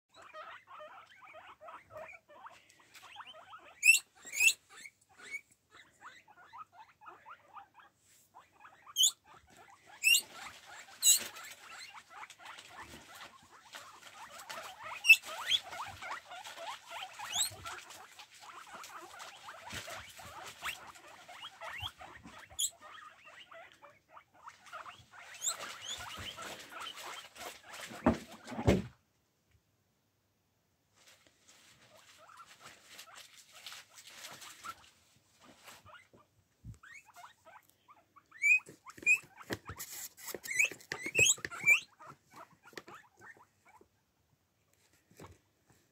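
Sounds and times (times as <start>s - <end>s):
guinea pigs squeaking and chirping: 0.1s - 28.8s, 31.8s - 44.0s
guinea pig wheeks: 0.1s - 29.0s, 30.9s - 45.9s.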